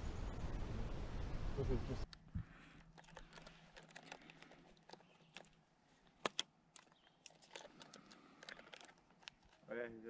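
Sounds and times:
sharp clicks: 2.1s - 9.6s.

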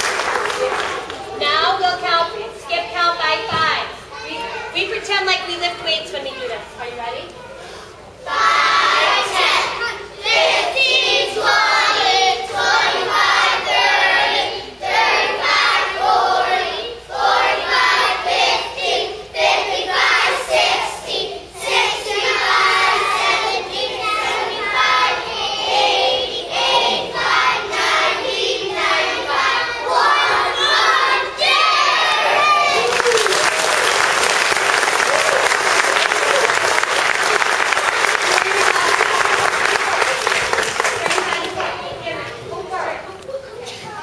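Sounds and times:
children singing in unison: 8.2s - 32.7s.

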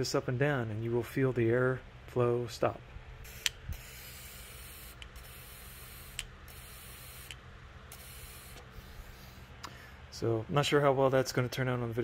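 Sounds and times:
air hissing in puffs: 8.3s - 10.0s.

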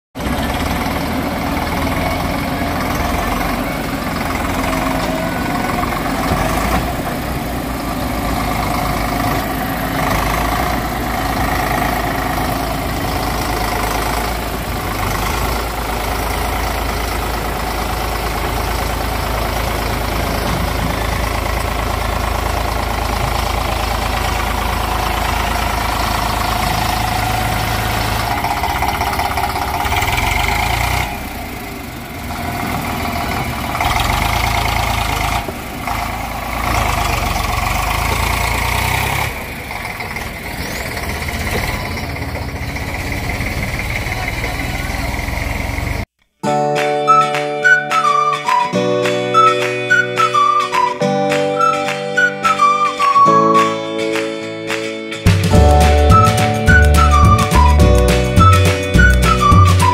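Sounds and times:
heavy diesel engines droning: 0.1s - 46.1s, 46.8s - 59.9s.

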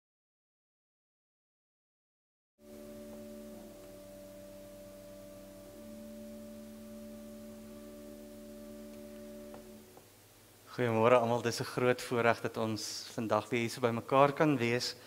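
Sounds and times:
keyboard chord: 2.6s - 10.2s.

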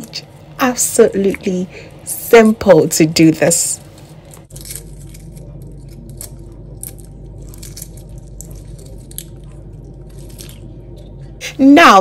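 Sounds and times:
steady low hum: 0.0s - 12.0s
eggshells cracking: 4.0s - 10.8s.

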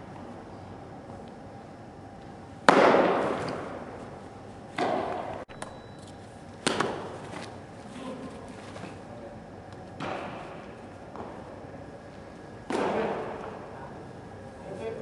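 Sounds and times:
baseball smacking into glove: 2.7s - 3.7s, 6.6s - 7.2s.

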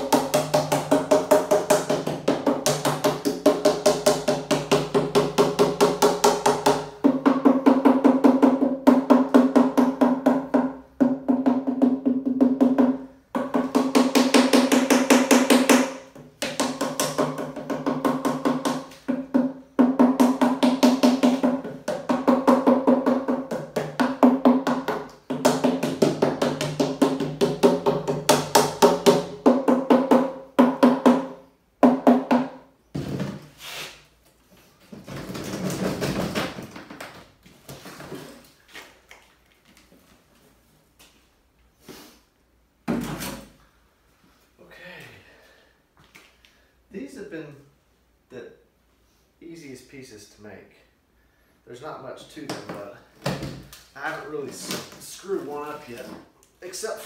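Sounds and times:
mallet beating plastic mould: 0.0s - 33.4s.

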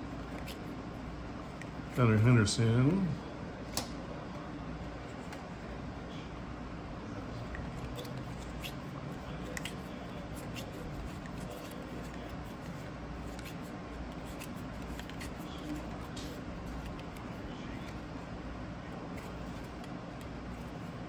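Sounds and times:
low background hum: 0.0s - 21.0s
cards clicking and sliding: 0.2s - 0.8s, 7.4s - 18.2s, 19.0s - 21.0s.

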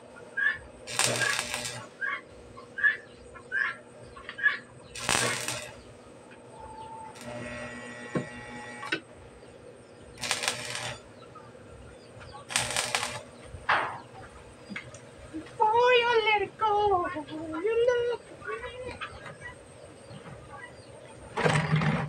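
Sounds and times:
steady hum: 0.0s - 21.3s
welding arc crackling: 0.8s - 2.2s, 4.9s - 6.0s, 7.1s - 9.1s, 10.1s - 11.3s, 12.4s - 13.4s.

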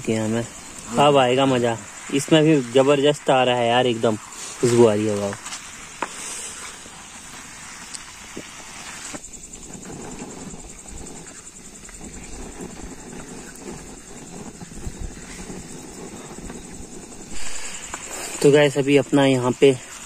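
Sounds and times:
insects chirring: 0.0s - 20.0s
low rumbling noise: 14.3s - 18.5s.

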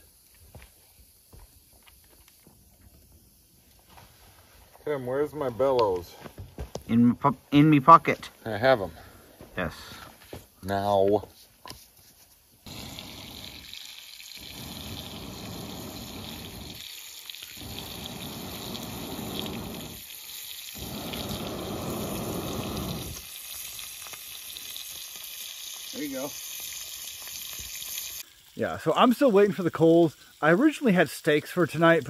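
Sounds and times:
bacon sizzling in a pan: 12.6s - 32.0s
bellows blowing air: 20.8s - 23.2s.

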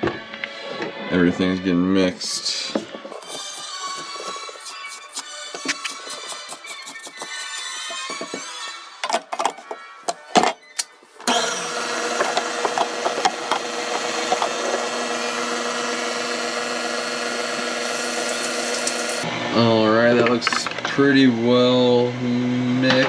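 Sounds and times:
stand mixer motor running: 11.3s - 19.5s.

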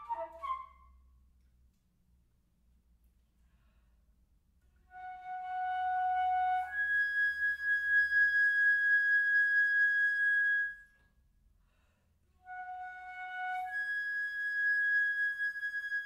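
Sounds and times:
flute playing long notes: 0.0s - 0.9s, 4.9s - 10.9s, 12.4s - 16.0s.

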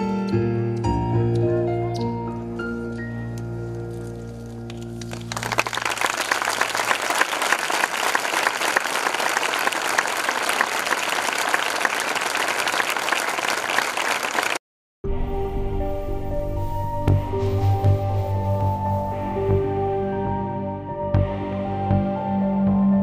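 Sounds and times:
music: 0.0s - 5.9s, 15.0s - 23.0s
audience applause: 5.0s - 14.6s
held music chord: 15.1s - 23.0s.

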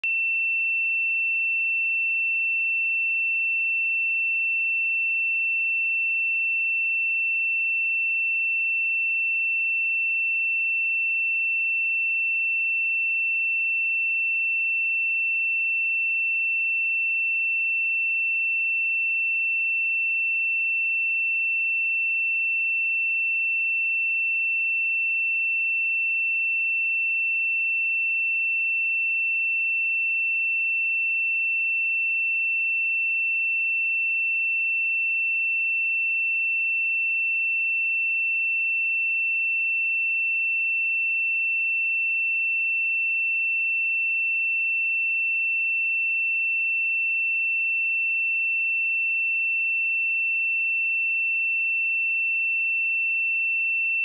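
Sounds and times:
high-pitched sine-wave test tone: 0.0s - 54.0s.

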